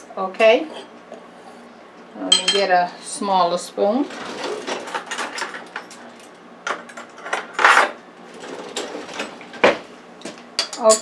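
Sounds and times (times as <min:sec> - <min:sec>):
metal cutlery clinking and rattling: 0:10.6 - 0:11.0.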